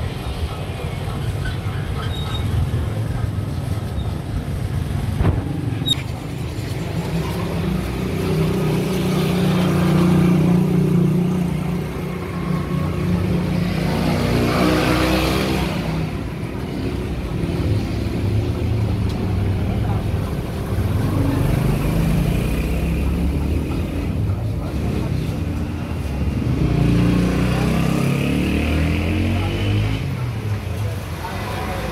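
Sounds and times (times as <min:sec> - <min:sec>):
vehicle engine accelerating: 0:02.7 - 0:31.0.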